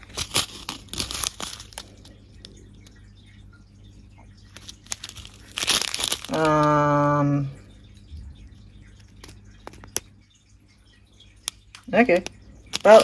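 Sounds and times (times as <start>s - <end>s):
plastic bag crinkling: 0.0s - 2.9s, 4.5s - 7.2s, 12.6s - 13.0s.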